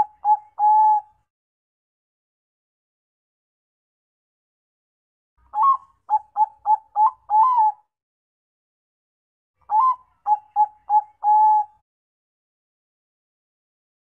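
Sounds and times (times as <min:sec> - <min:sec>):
dove cooing: 0:00.0 - 0:01.1, 0:05.6 - 0:07.8, 0:09.7 - 0:11.8.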